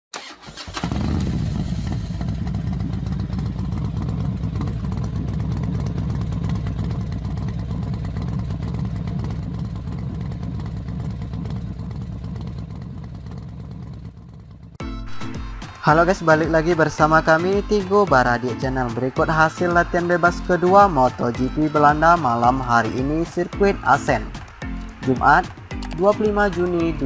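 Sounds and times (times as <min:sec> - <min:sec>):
motorcycle engine revving: 0:00.1 - 0:14.8.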